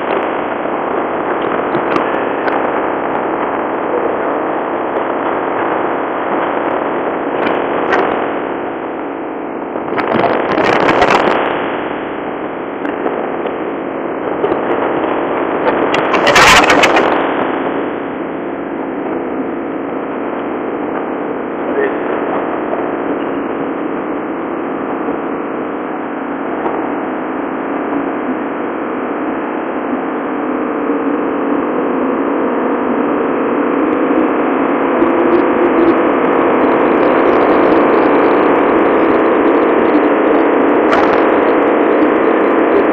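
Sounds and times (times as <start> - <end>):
wind and sea rushing: 0.0 - 27.1
wind buffeting microphone: 0.0 - 28.2, 30.7 - 42.9.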